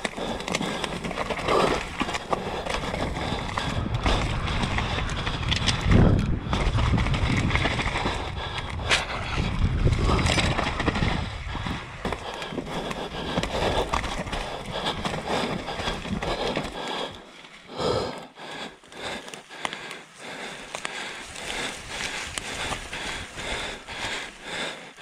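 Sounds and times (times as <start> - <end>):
bike rattling and clicking: 0.0 - 25.0
bike tyres on dirt trail: 0.0 - 25.0
low rumble: 2.9 - 12.1.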